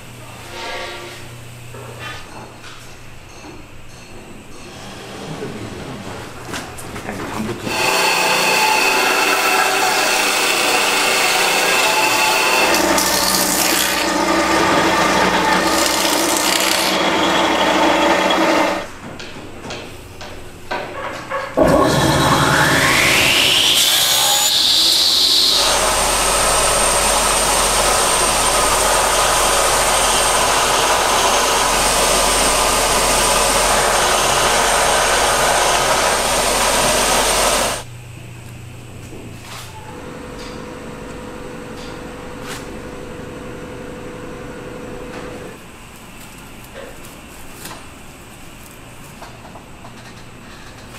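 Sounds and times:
band saw cutting wood: 0:07.7 - 0:18.9, 0:21.6 - 0:37.9.

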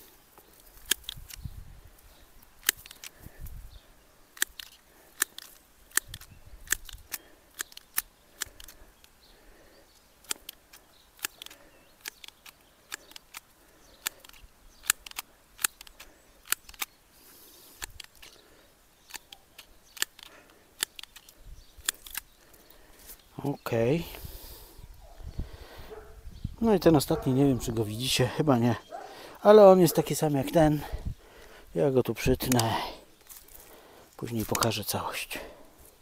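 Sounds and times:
secateurs snipping stems: 0:00.3 - 0:01.5, 0:02.4 - 0:03.6, 0:04.3 - 0:09.2, 0:10.0 - 0:23.2, 0:32.4 - 0:33.7.

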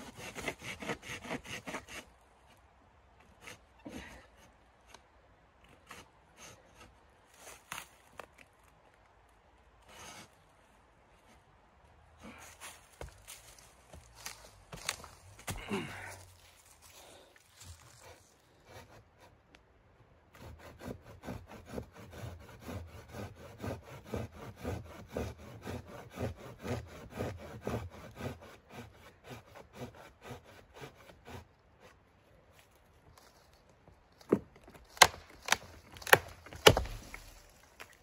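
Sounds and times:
hand saw cutting wood: 0:00.0 - 0:02.1, 0:03.4 - 0:04.2, 0:09.8 - 0:10.3, 0:18.0 - 0:19.3, 0:20.3 - 0:32.0, 0:34.9 - 0:38.0.

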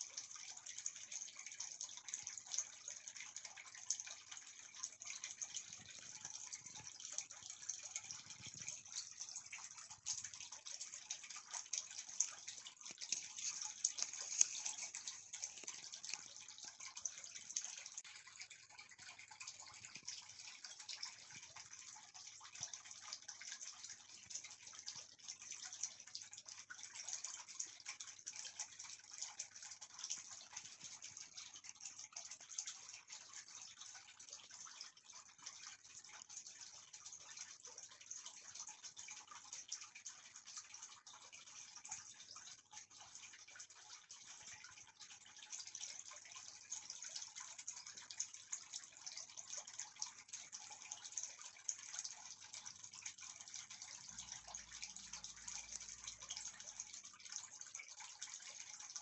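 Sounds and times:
faint steady hissing noise: 0:04.2 - 0:18.3.

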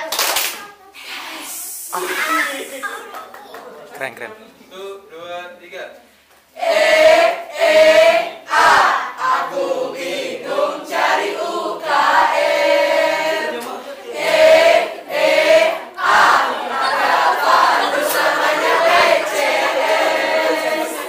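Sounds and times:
choir singing: 0:06.6 - 0:21.0.

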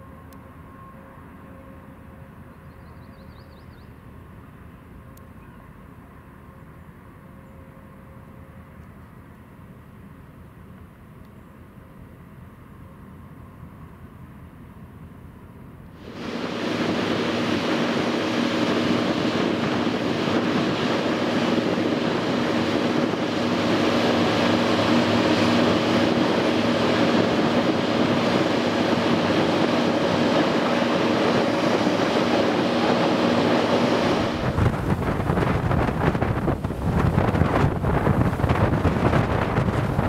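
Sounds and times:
ship engines droning: 0:00.0 - 0:40.0
wind and water rushing: 0:16.0 - 0:40.0.

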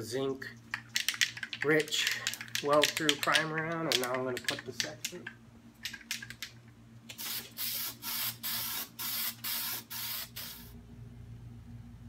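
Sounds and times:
sharp clicks: 0:00.8 - 0:07.2
aerosol can spraying: 0:07.1 - 0:10.7.

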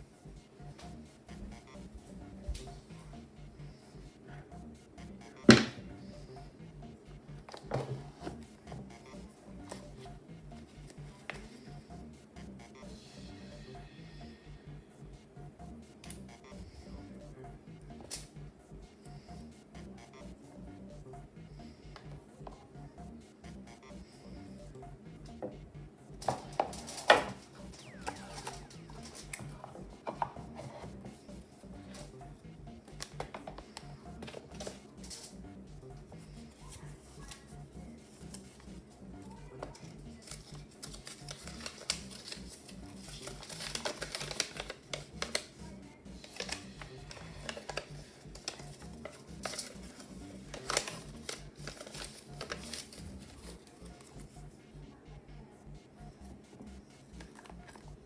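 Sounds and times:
quiet background music with bass: 0:00.0 - 0:58.0
paper leaflet crinkling: 0:40.2 - 0:45.5, 0:46.2 - 0:54.1.

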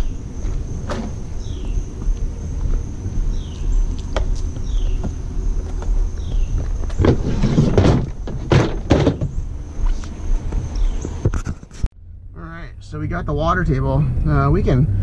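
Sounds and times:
low rumble: 0:00.0 - 0:08.4, 0:09.2 - 0:15.0
hollow plastic knocks and clatter: 0:06.6 - 0:09.4.

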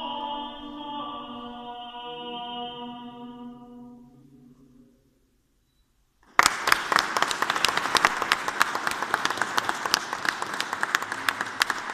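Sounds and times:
audience applause: 0:06.3 - 0:11.9.

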